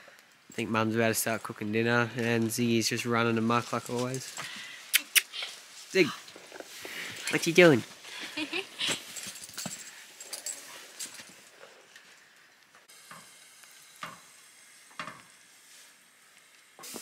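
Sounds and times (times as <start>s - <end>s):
pan simmering hiss: 12.2s - 17.0s.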